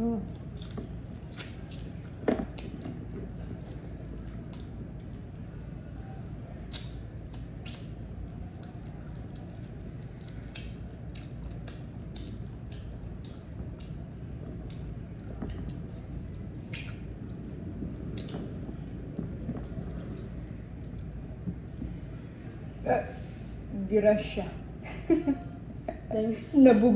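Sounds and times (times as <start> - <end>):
steady low hum: 0.0 - 26.9
crunchy chewing: 0.2 - 5.9, 6.5 - 22.3
wet mouth clicks: 6.6 - 8.0, 14.6 - 17.6.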